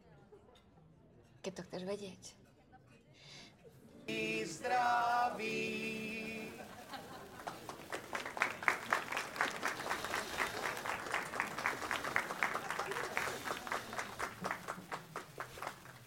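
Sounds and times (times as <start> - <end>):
people clapping: 4.1 - 16.0.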